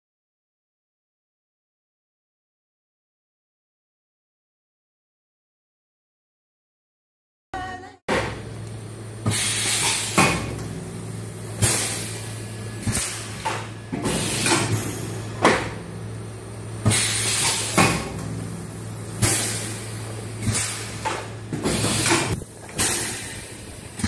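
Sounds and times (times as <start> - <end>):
machine humming: 7.6 - 24.0.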